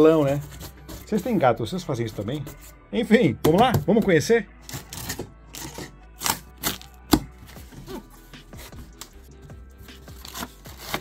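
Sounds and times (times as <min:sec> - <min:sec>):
box cutter slicing tape: 0:10.2 - 0:11.0
cardboard flaps tearing open: 0:10.2 - 0:11.0.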